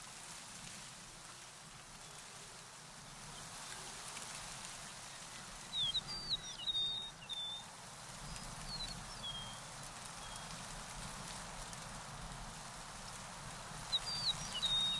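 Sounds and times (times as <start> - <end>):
steady outdoor hiss: 0.0 - 14.9
songbird chirping: 5.0 - 10.6, 13.8 - 14.9.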